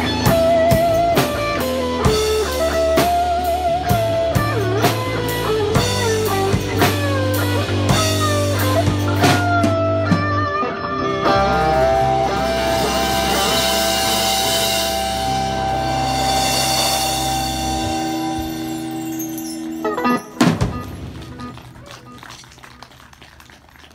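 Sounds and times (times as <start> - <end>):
lead electric guitar: 0.0 - 23.9
cymbals washing: 12.5 - 22.7
drum hits: 19.9 - 22.3.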